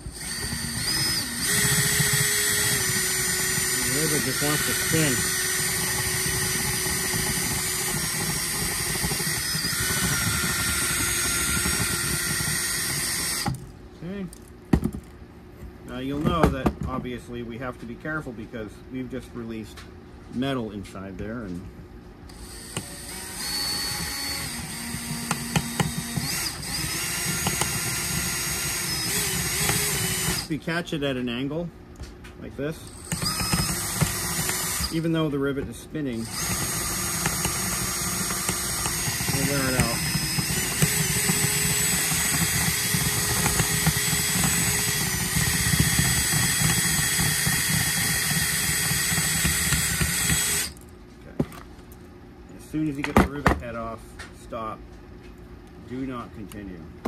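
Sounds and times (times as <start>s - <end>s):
cordless drill running: 0.0s - 13.6s, 22.3s - 30.5s, 32.9s - 35.3s, 36.1s - 50.8s.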